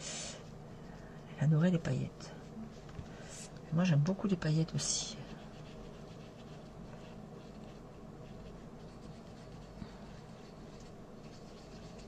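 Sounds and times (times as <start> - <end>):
brush pen scratching on paper: 5.3 - 12.0.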